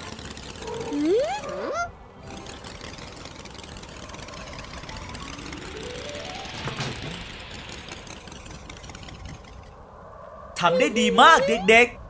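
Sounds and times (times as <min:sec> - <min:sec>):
low engine hum: 0:00.0 - 0:10.0
rising run of notes: 0:00.7 - 0:09.7.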